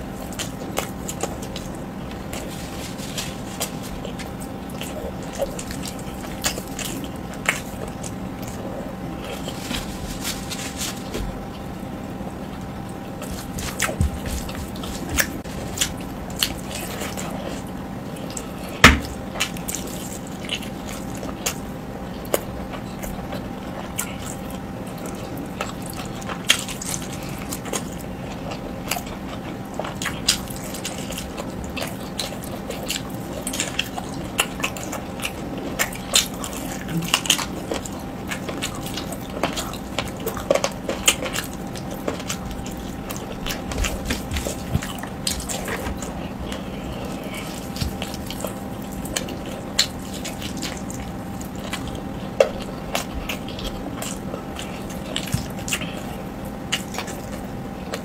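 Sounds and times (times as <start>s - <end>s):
faint steady hum: 0.0s - 58.0s
wet chewing and mouth smacks: 12.4s - 58.0s.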